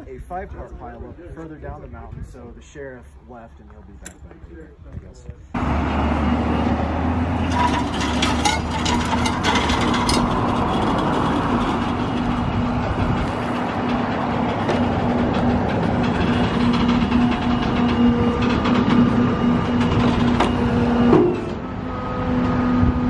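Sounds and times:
tow truck engine running: 5.6s - 23.0s
clicks and rattles: 7.5s - 12.2s.

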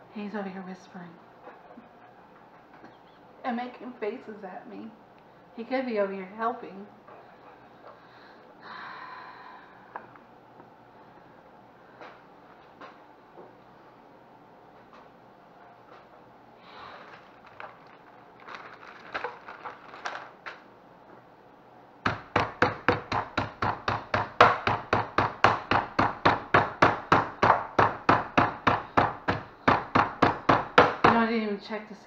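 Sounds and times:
plastic bag rustling: 16.6s - 20.7s
rolling pin pounding meat: 22.0s - 31.3s.

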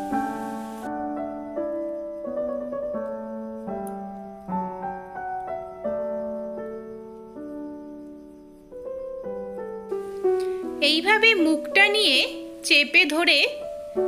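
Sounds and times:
slow piano music: 0.0s - 14.0s.

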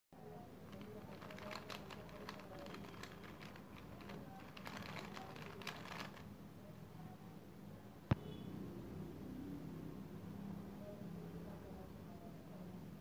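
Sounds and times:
puzzle cube layers clicking: 0.8s - 6.2s.

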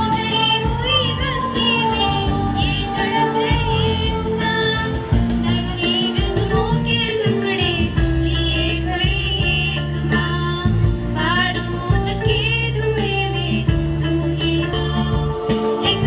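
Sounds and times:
girls singing into microphones: 0.0s - 16.0s
held bass notes: 0.0s - 16.0s.

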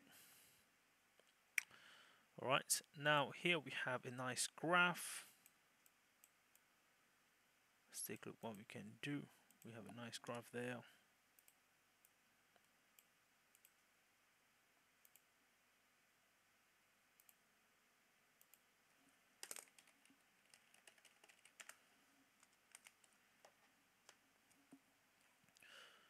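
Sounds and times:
computer mouse clicks: 11.4s - 13.8s, 15.0s - 15.3s, 17.2s - 17.4s, 18.4s - 18.6s, 19.4s - 21.8s, 22.4s - 24.8s.

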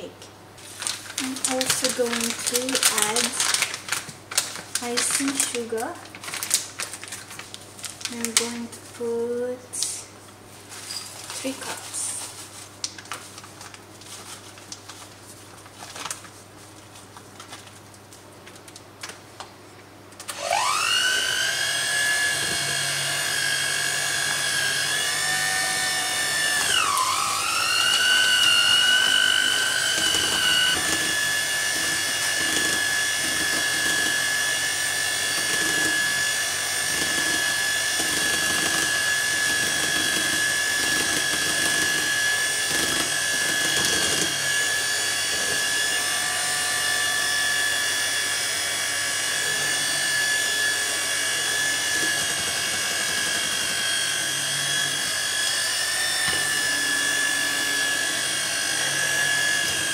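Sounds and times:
electric hand mixer whining: 1.0s - 4.1s, 20.3s - 59.9s.

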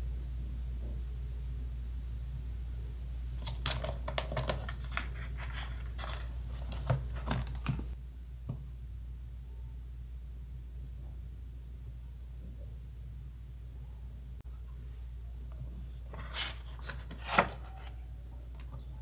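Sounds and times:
steady low hum: 0.0s - 19.0s
paper pages rustling: 3.4s - 8.0s, 16.1s - 18.0s.

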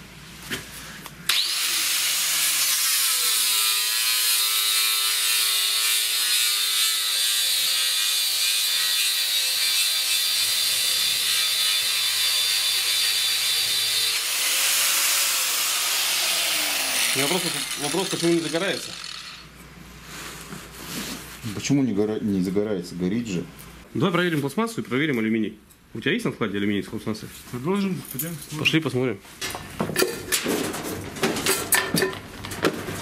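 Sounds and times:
angle grinder whine: 1.3s - 19.5s
grinder cutting into wood: 1.3s - 19.5s.

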